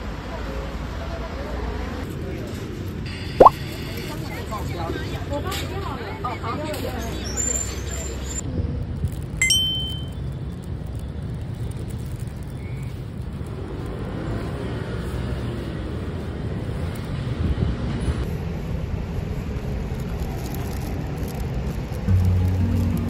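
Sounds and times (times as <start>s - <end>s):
road traffic rumble: 7.6s - 23.0s.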